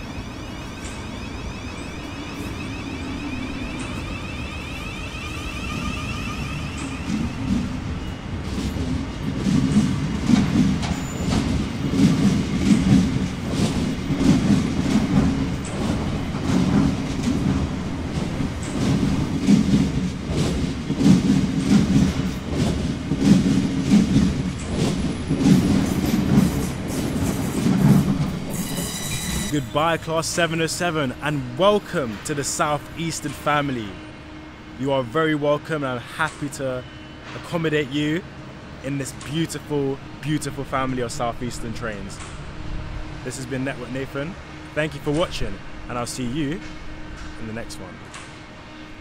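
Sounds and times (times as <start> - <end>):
wheels clattering over rail joints: 0.0 - 33.8
train rumble pulling away: 0.0 - 49.0.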